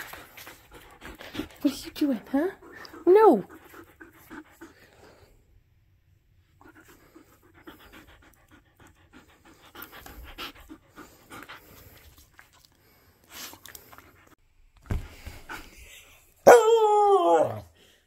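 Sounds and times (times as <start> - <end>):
dog panting quickly: 0.0 - 5.4, 6.5 - 14.4.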